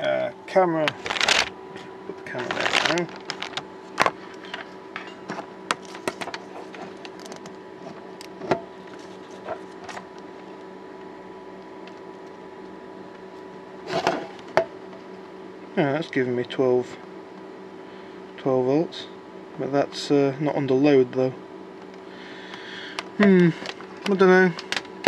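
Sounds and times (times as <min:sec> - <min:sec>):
steady electrical hum: 0:00.0 - 0:25.0
test probes clicking and rattling: 0:00.8 - 0:01.5, 0:02.5 - 0:04.7, 0:05.7 - 0:07.5, 0:22.9 - 0:25.0.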